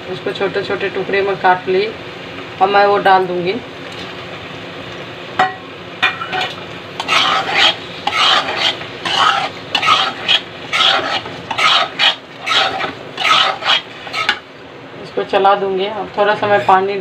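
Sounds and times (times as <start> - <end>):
masala sizzling quietly: 0.0 - 17.0
metal spatula scraping masala: 6.2 - 14.4.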